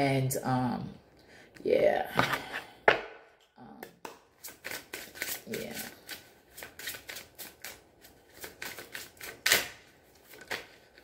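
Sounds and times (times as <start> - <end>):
cards being shuffled: 4.4 - 11.0.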